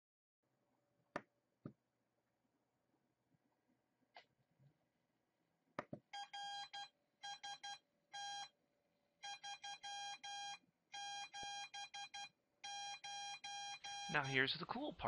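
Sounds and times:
morse code beeps: 0:06.2 - 0:08.5, 0:09.2 - 0:14.4.

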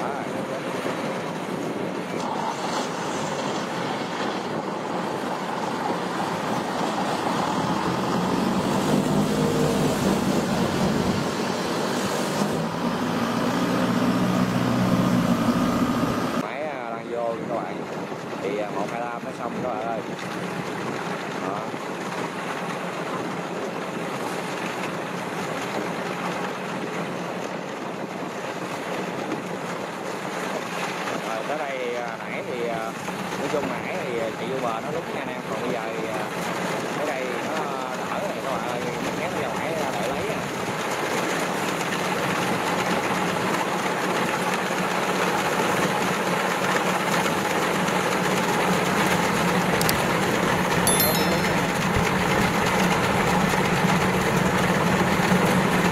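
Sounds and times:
farm machinery engine running: 0:06.2 - 0:16.4, 0:39.9 - 0:50.8, 0:51.7 - 0:55.9
combine harvester engine running: 0:07.9 - 0:16.4.

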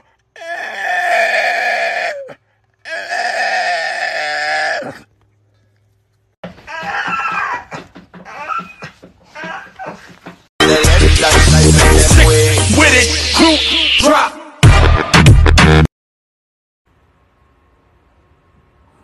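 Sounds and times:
choppy vocal sounds: 0:10.6 - 0:15.4.

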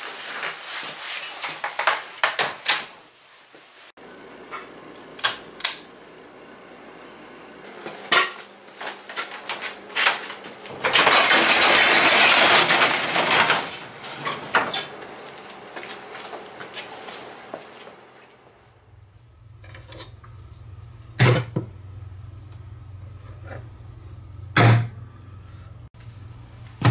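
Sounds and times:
garage door rattling open: 0:10.0 - 0:15.0.

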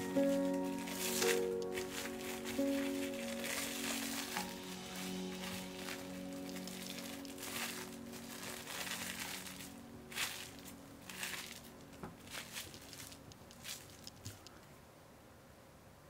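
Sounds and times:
cling film crinkling: 0:00.0 - 0:14.6.

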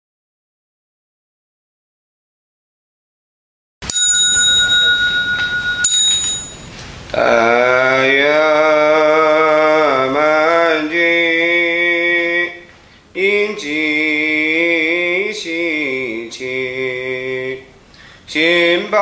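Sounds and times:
bell ringing: 0:03.8 - 0:06.8
person chanting prayer: 0:07.1 - 0:17.7, 0:18.3 - 0:19.0.

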